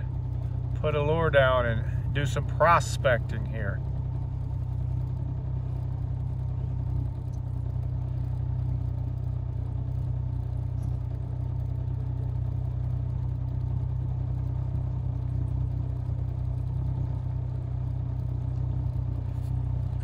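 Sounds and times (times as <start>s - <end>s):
boat motor running: 0.0s - 20.0s.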